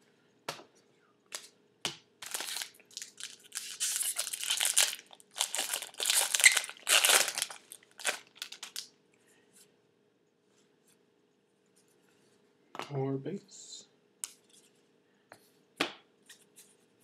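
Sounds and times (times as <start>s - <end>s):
wrapper tearing and rustling: 2.2s - 8.9s.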